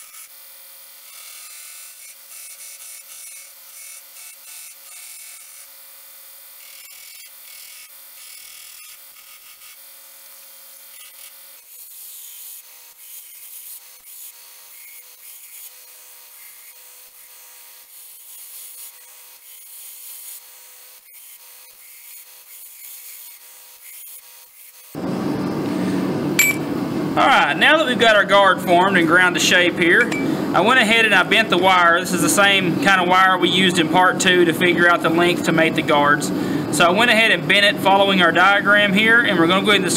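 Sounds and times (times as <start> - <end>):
belt grinder grinding metal: 0.0 - 25.0.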